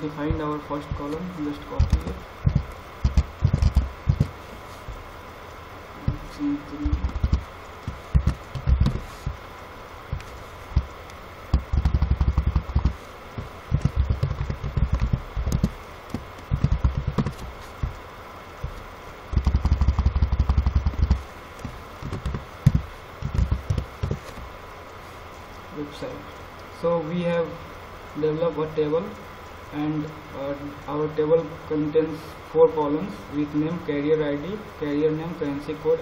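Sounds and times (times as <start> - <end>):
computer keyboard typing: 1.0 - 4.4, 6.1 - 9.0, 10.1 - 13.0, 13.7 - 18.0, 18.6 - 24.4.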